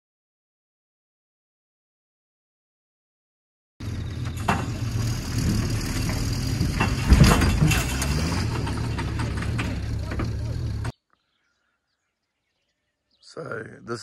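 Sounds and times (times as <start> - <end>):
metal clanks and knocks: 3.8 - 10.9
truck engine running: 3.8 - 10.9.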